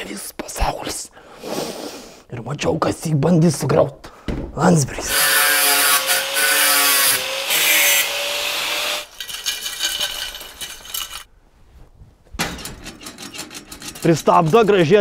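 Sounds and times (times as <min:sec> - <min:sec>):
angle grinder cutting metal: 0:05.1 - 0:09.2
metallic clatter and rubbing: 0:09.1 - 0:11.3, 0:12.3 - 0:15.0.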